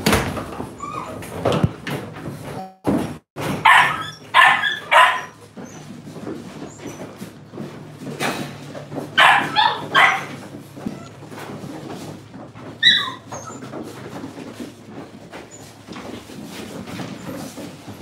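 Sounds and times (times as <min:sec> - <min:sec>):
puppy yelp: 0:00.8 - 0:01.4, 0:03.5 - 0:05.9, 0:09.2 - 0:11.2, 0:12.8 - 0:14.2
puppies yipping: 0:03.6 - 0:06.0, 0:09.2 - 0:11.2, 0:12.6 - 0:14.4.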